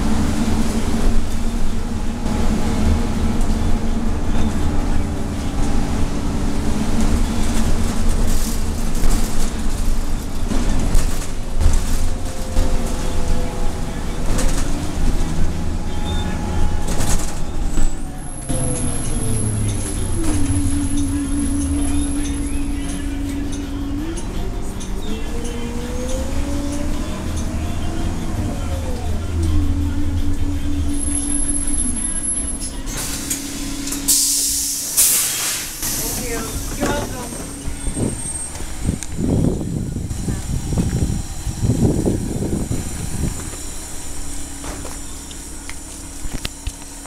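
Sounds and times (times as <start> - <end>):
bus engine and road rumble: 0.0 - 47.0
drivetrain whine: 0.0 - 47.0
air brake hiss: 32.9 - 37.0.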